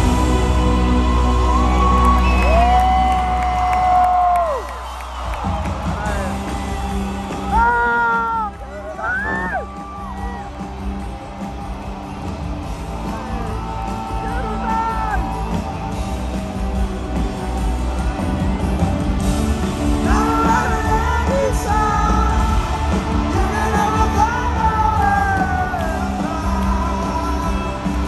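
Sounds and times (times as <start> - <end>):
rock band playing: 0.0 - 28.0
crowd shouting: 4.0 - 28.0
person singing: 20.0 - 28.0.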